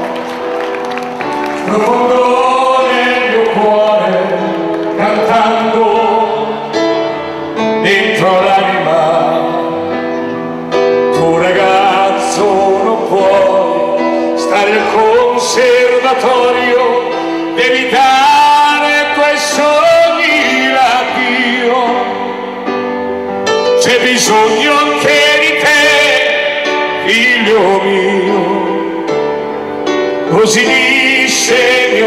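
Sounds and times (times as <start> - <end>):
pop ballad over sound system: 0.0 - 32.0.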